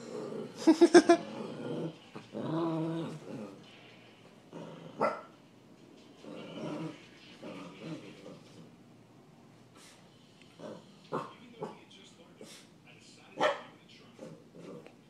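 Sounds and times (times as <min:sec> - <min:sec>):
small dog growling: 0:00.0 - 0:03.7, 0:04.5 - 0:05.2, 0:06.2 - 0:08.8, 0:10.5 - 0:11.8, 0:14.1 - 0:15.0
small dog barking: 0:05.0 - 0:05.3, 0:13.4 - 0:13.8.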